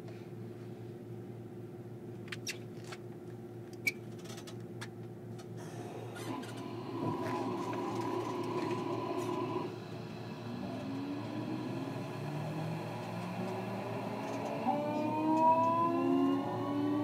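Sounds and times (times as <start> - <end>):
low equipment hum: 0.0 - 17.0
train running whine: 5.6 - 17.0.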